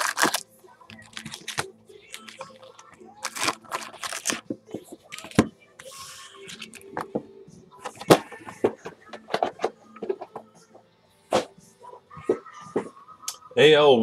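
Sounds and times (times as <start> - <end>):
foil packs crinkling: 0.0 - 4.4.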